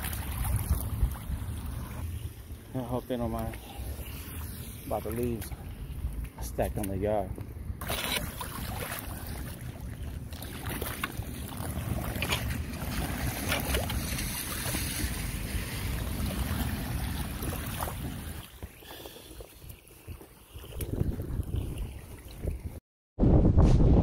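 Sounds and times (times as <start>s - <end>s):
wind buffeting microphone: 0.0s - 7.8s, 8.7s - 24.0s
water rushing into drain: 7.8s - 18.6s.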